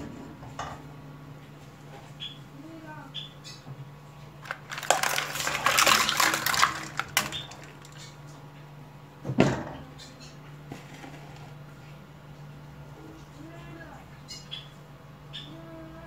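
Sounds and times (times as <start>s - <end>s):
eggshells clattering in metal pot: 4.4s - 8.2s.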